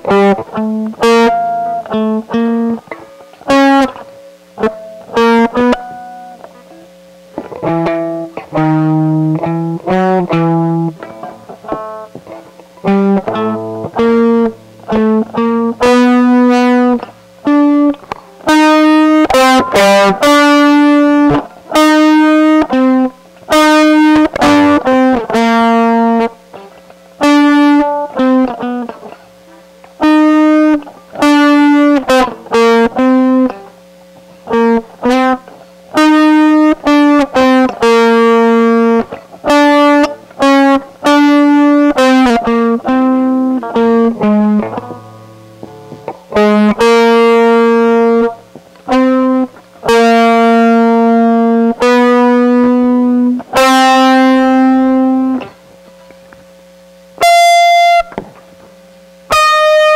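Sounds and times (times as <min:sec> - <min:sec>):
electric guitar riff: 0:00.0 - 0:59.9.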